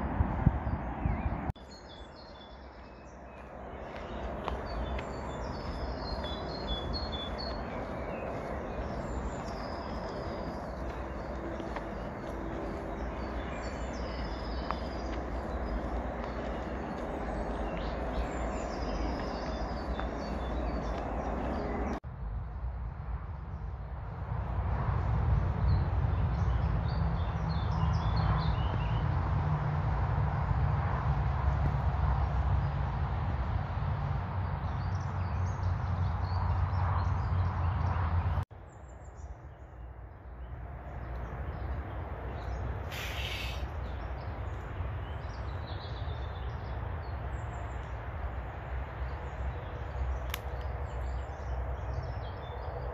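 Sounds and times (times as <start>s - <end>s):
small birds chirping and singing: 0.6s - 22.0s, 34.6s - 48.1s.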